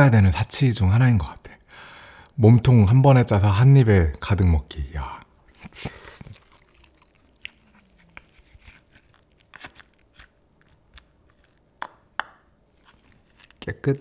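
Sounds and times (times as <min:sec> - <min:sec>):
chewing: 0:05.4 - 0:11.1
spoon scraping crab shell: 0:05.5 - 0:11.6.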